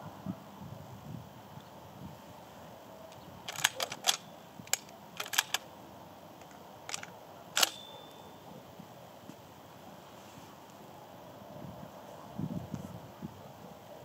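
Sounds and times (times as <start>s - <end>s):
sharp mechanical clicks: 3.1s - 5.7s, 6.4s - 8.2s.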